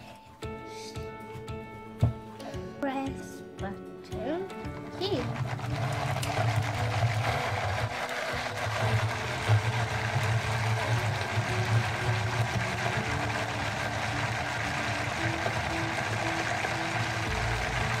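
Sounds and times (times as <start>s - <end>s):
blender motor humming: 4.7s - 18.0s.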